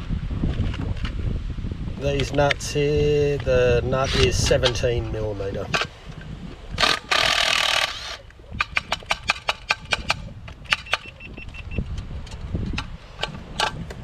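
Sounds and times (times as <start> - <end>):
impact wrench running: 6.8 - 8.2.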